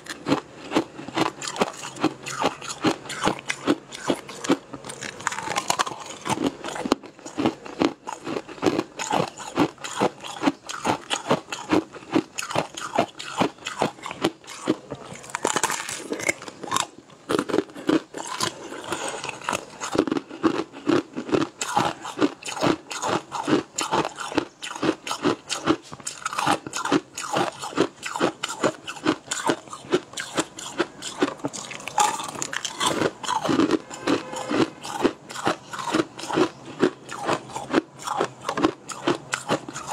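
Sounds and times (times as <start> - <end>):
crunching and chewing: 0.0 - 39.9.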